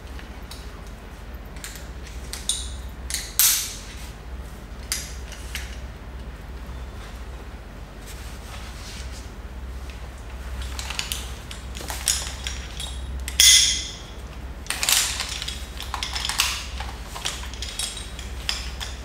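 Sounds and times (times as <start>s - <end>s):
metal hardware clinking: 10.8s - 19.0s
sharp metallic clank: 13.4s - 14.1s.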